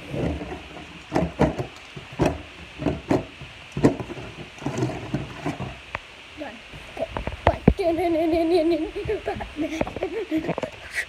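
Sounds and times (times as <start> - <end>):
irregular knocks and thumps: 0.0 - 5.9.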